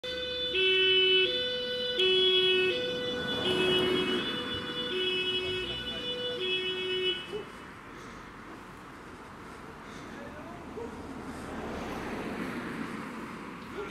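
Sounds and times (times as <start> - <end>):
two-tone fire engine siren: 0.0 - 6.8.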